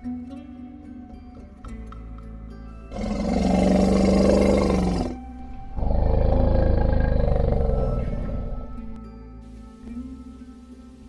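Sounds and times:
soft instrumental music: 0.0s - 11.0s
large animal roaring: 2.9s - 9.0s.

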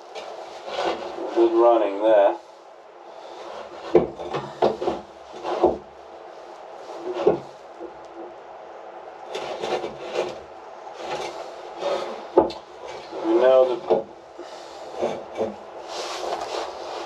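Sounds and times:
scraping and rubbing: 0.0s - 1.6s, 3.1s - 8.4s, 9.2s - 17.0s
wooden knocks and clunks: 3.8s - 5.8s, 7.0s - 8.3s, 11.9s - 13.1s, 13.8s - 14.1s, 15.0s - 15.6s.

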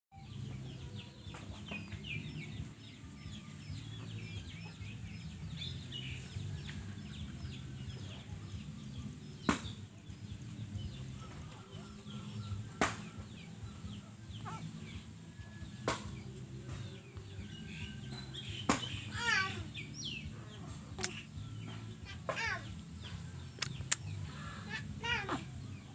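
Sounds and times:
sharp clicks: 23.6s - 24.1s.

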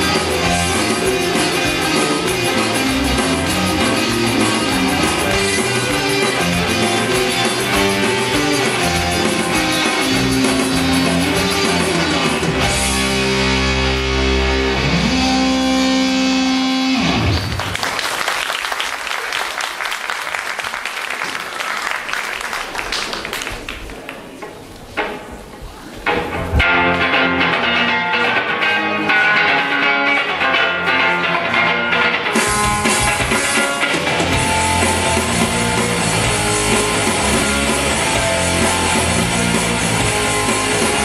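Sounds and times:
live rock band playing: 0.0s - 17.7s, 26.2s - 41.0s
audience applause: 0.2s - 12.0s, 17.2s - 24.4s.

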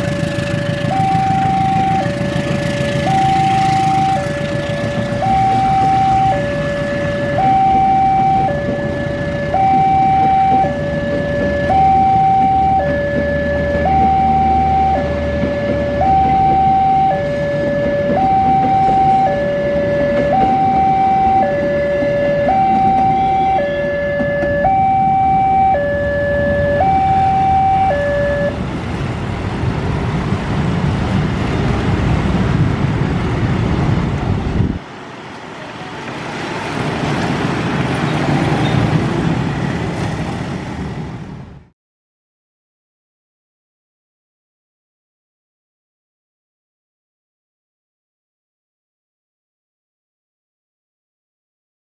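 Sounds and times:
level crossing two-tone alarm: 0.0s - 28.6s
motorcycles passing: 0.0s - 41.2s
train coaches rumbling past: 0.0s - 41.7s
street traffic: 0.0s - 41.8s.

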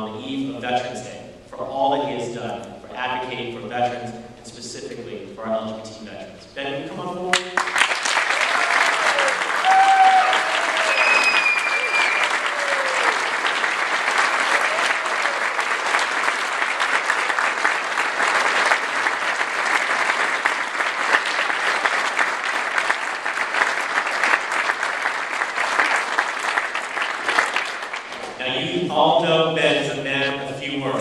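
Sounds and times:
audience applauding: 7.3s - 28.8s.

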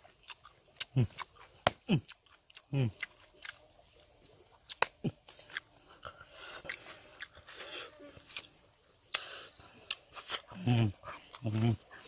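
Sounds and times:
chewing: 0.0s - 12.0s
fruit skin peeling snaps: 0.3s - 3.6s, 4.6s - 5.7s.

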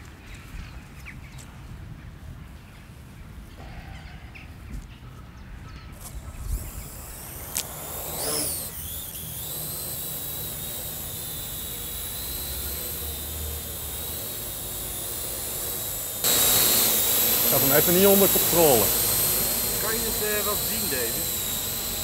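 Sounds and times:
drone propellers whining: 5.9s - 22.0s
sharp click: 7.4s - 8.7s.

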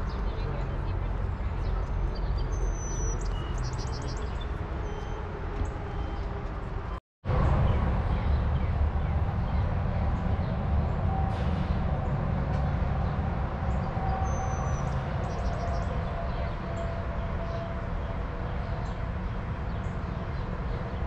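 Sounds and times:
faint high bird chirps: 1.8s - 5.2s
steady low rumble: 6.9s - 14.2s.

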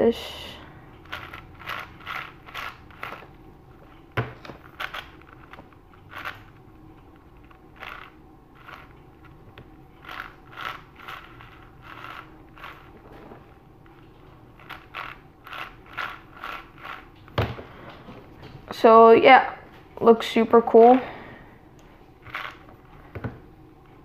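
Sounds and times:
plastic puzzle cube clicking: 1.0s - 3.2s, 4.7s - 6.5s, 7.4s - 9.4s.

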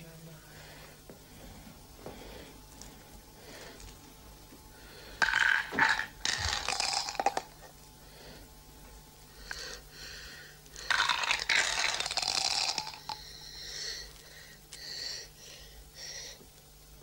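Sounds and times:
glass marbles clattering: 5.2s - 7.6s.

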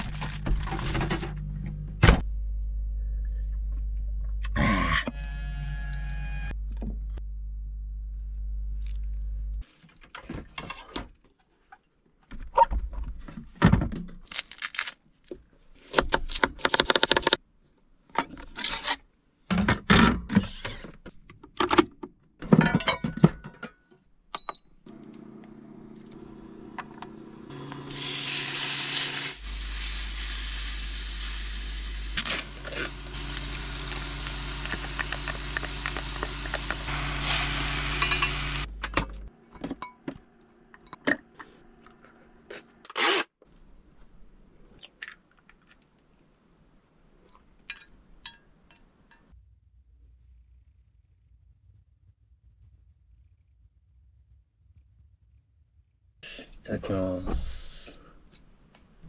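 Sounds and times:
utensils and dishes clinking: 37.9s - 38.6s.

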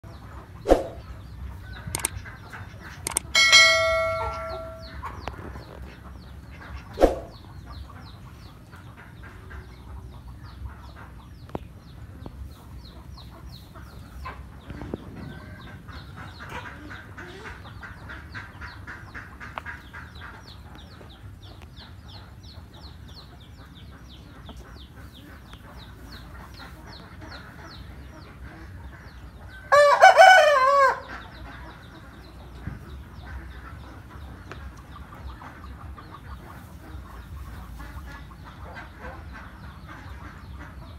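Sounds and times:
short sharp sound: 7.0s - 7.4s
rooster crowing: 29.7s - 31.1s.

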